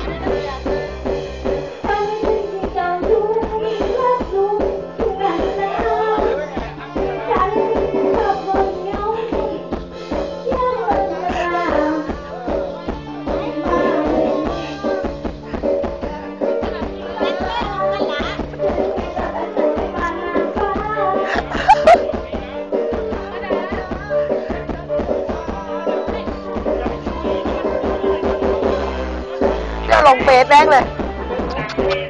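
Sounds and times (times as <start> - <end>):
drum beat: 0.0 - 32.0
person singing: 1.8 - 22.4.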